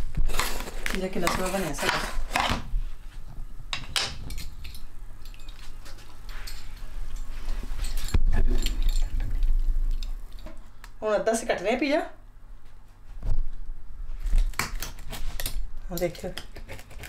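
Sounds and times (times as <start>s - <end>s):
low handling rumble: 8.0s - 10.6s.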